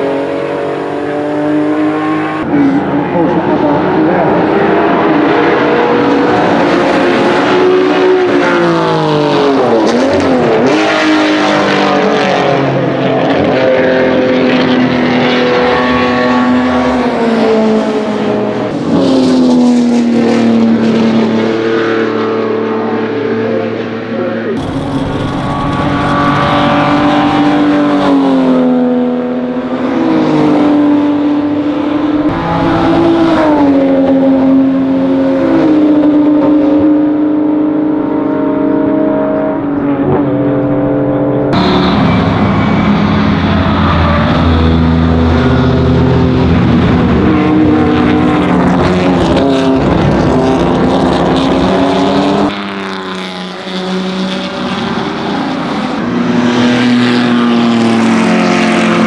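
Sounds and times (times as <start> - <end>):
racing car engine: 0.0 - 59.0
heavy low engine rumble: 24.2 - 27.0.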